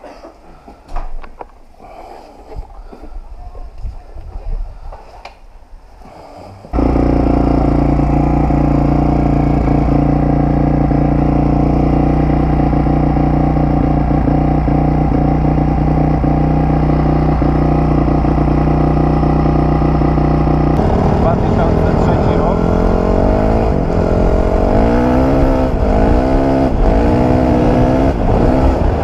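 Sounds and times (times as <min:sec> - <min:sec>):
motorcycle engine idling: 0:06.7 - 0:26.0.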